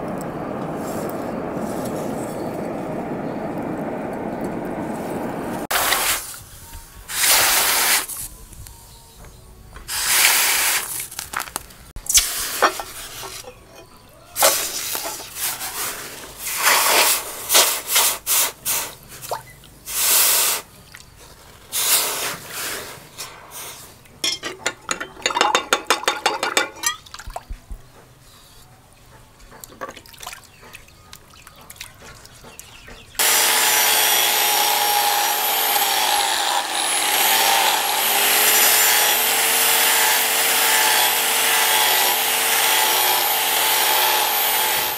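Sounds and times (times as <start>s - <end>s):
angle grinder whine: 33.2s - 44.9s.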